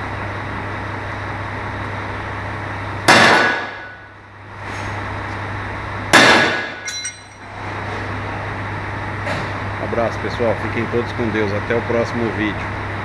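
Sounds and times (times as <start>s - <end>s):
sledgehammer clanging on metal: 6.5s - 7.5s.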